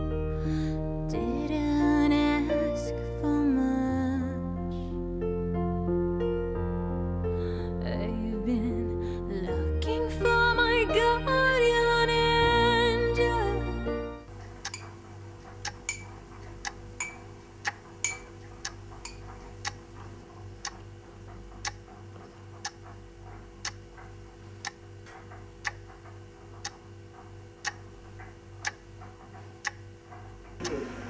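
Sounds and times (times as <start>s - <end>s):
clock ticking: 14.4s - 20.0s, 20.6s - 30.9s.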